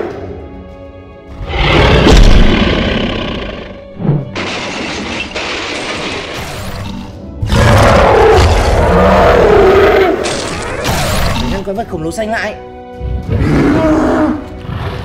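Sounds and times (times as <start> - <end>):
background music: 0.0 - 15.0
monster growling roar: 7.4 - 10.4, 13.3 - 15.0.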